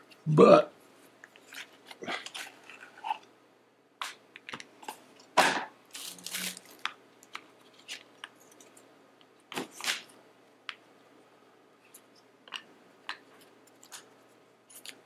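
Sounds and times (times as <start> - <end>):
packaging crinkling and rustling: 5.9 - 8.8.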